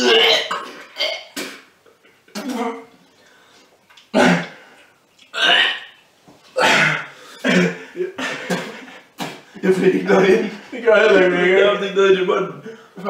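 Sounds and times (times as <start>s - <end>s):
man gagging and retching: 0.0s - 2.9s, 4.0s - 4.7s, 5.3s - 6.0s, 6.6s - 9.5s.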